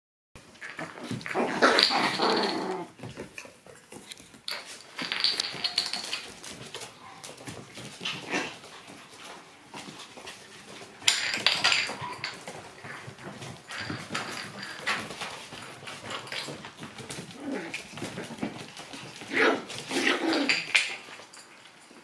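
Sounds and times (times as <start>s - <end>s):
puppies making play noises: 0.4s - 22.0s.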